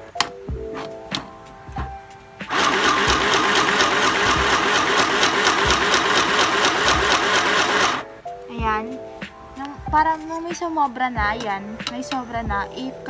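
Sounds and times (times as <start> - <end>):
sewing machine motor running: 2.5 - 8.0.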